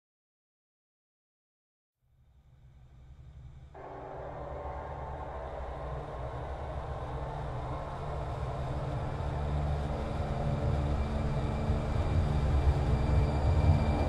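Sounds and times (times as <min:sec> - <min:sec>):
low rumbling drone: 0:02.7 - 0:14.0
sustained tones: 0:03.8 - 0:14.0.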